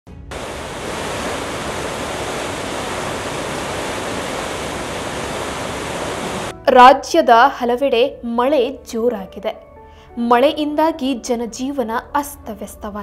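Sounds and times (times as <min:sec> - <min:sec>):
heavy rain pouring: 0:00.3 - 0:06.6.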